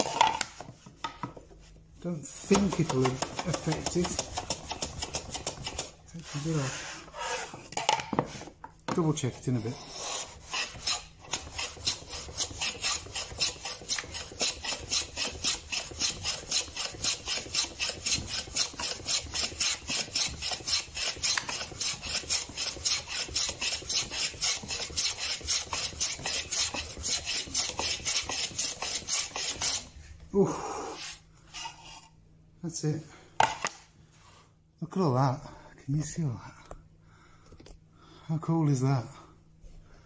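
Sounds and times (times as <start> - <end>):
hand plane scraping wood: 2.2 - 29.9.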